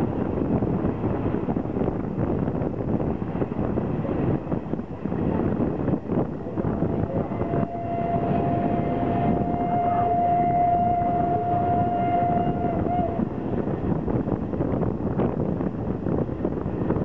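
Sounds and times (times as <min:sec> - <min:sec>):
moving train running noise: 0:00.0 - 0:17.0
wind on microphone: 0:00.0 - 0:17.0
steam locomotive whistle: 0:06.8 - 0:13.3.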